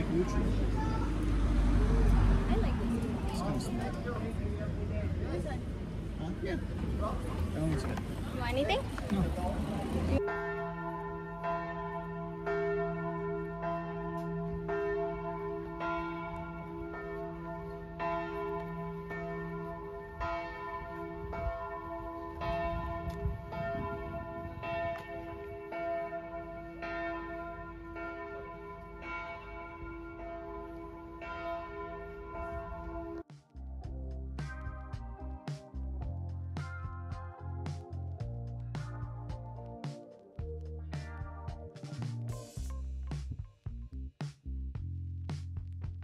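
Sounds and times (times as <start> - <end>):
church bells ringing: 9.8 - 33.3.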